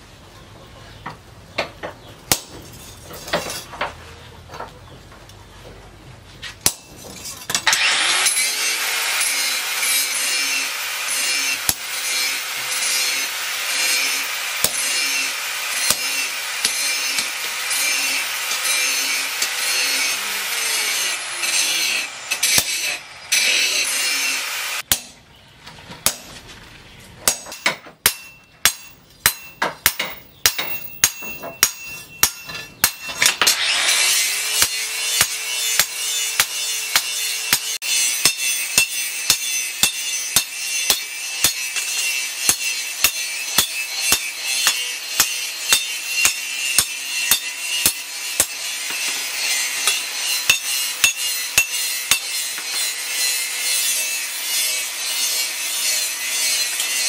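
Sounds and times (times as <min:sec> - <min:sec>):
hammer striking steel on anvil: 0:06.6 - 0:08.6, 0:09.2 - 0:25.2, 0:27.2 - 0:57.0
motor hum with rushing noise: 0:22.0 - 0:23.4.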